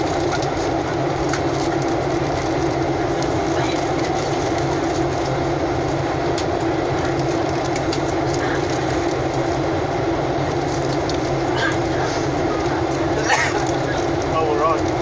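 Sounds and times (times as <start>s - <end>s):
airplane cabin drone in flight: 0.0s - 15.0s.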